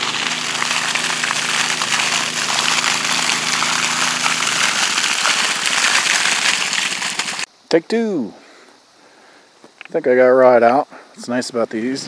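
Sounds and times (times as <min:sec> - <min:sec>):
sprinkler water spraying and splashing: 0:00.0 - 0:07.5
water flushing from open pipe: 0:00.0 - 0:07.5.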